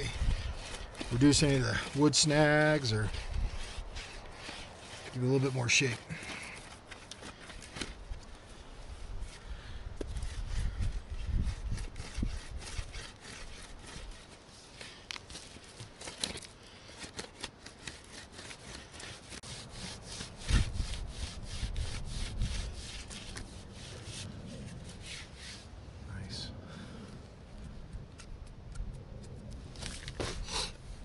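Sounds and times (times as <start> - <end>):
wooden stick rasping on stone: 0.0 - 8.0, 10.0 - 25.7.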